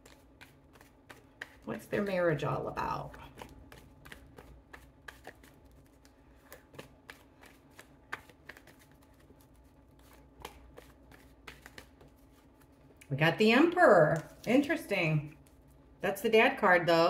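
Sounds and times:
cards being shuffled: 0.0 - 13.0, 14.1 - 14.8.

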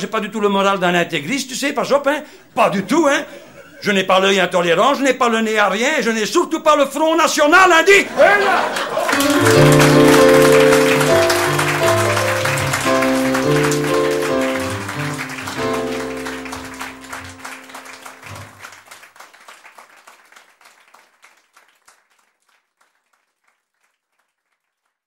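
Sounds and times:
audience applause: 8.0 - 23.6
closing music: 9.1 - 18.6.

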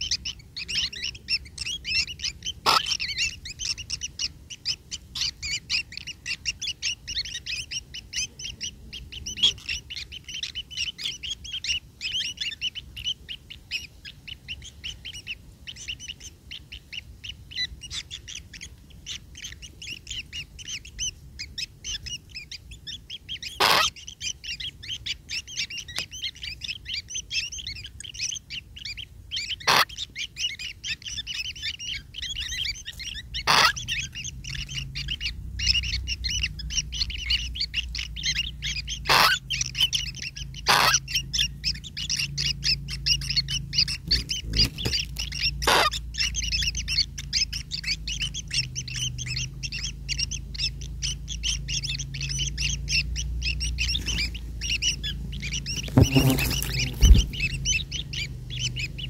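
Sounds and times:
nestlings begging with high chirps: 0.0 - 59.0.

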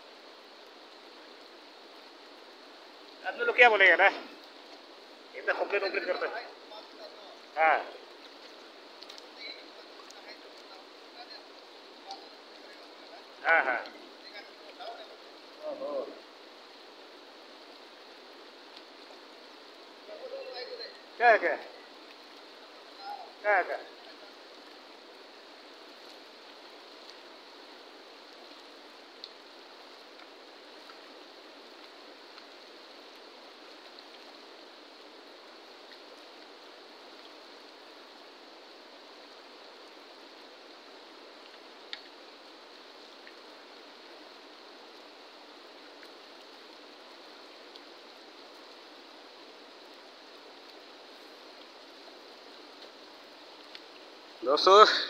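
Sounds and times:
river water rushing: 0.0 - 55.0
faint clicks: 8.3 - 9.3, 41.4 - 42.2, 53.6 - 54.0.

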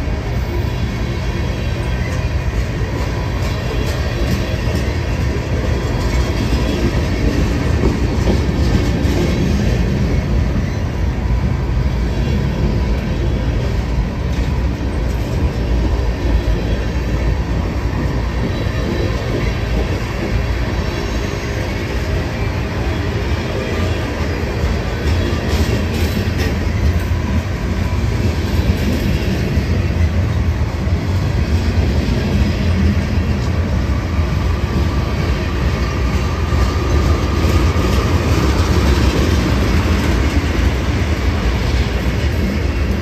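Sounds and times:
freight cars rumbling on rails: 0.0 - 43.0.

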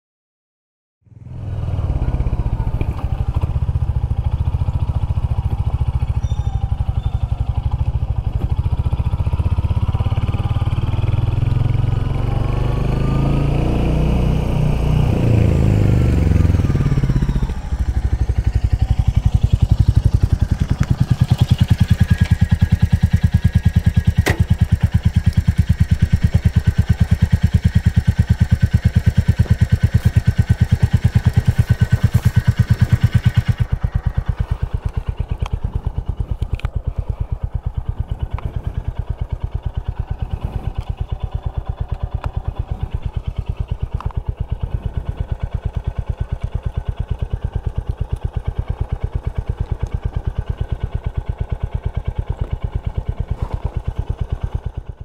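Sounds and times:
motorcycle engine riding and idling: 1.0 - 55.0
sharp click: 24.2 - 24.5.

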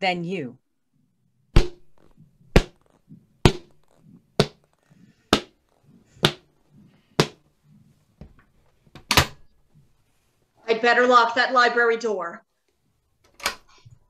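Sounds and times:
shoe footsteps on hard surface: 1.6 - 7.5.

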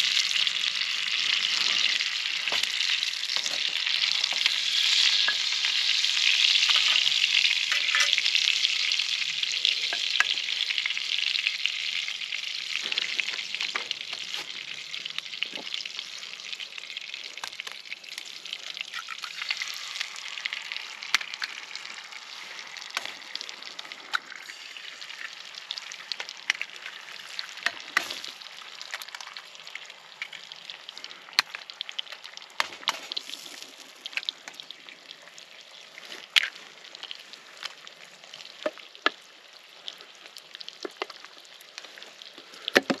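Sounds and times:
food sizzling in a pan: 0.0 - 43.0
sharp pops and crackles: 0.0 - 43.0.

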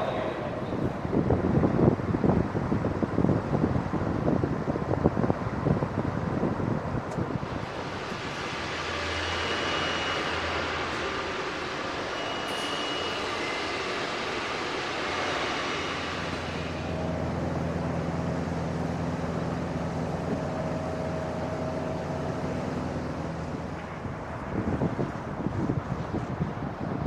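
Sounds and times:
engine rumble and hiss: 0.2 - 27.0.

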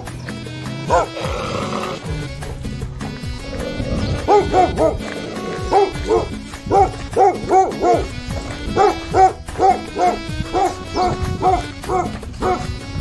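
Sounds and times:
dog barking: 0.9 - 1.4, 4.2 - 12.7.

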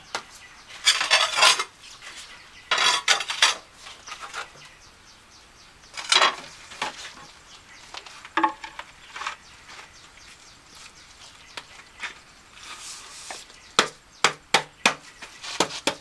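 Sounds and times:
hard objects clinking and scraping: 0.8 - 1.8, 2.7 - 4.5.

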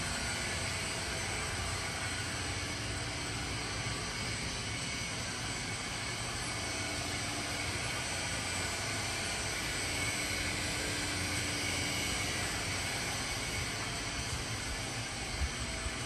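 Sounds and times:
coffee roaster fans rushing air: 0.0 - 16.0.

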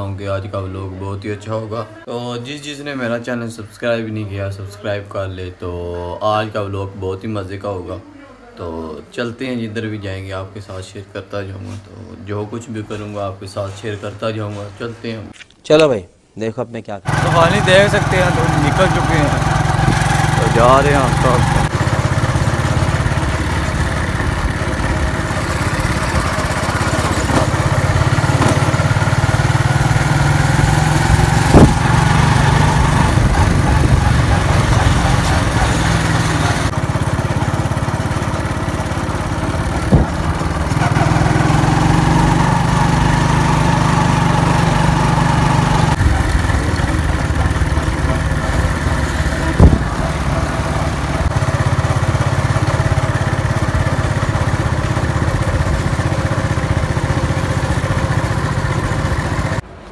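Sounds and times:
motorcycle engine running: 17.1 - 59.7.

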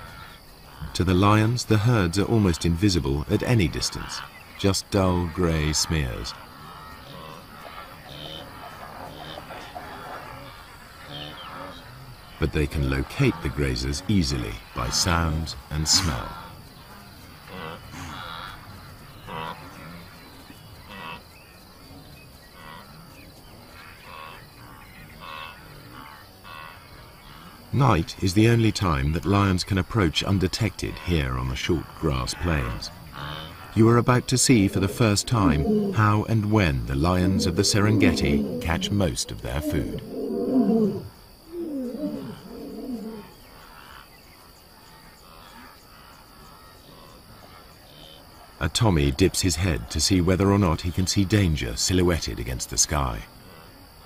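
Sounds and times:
faint low background: 0.0 - 53.9
night insects chirping: 0.0 - 54.0
lion roaring and grunting: 32.6 - 43.3.

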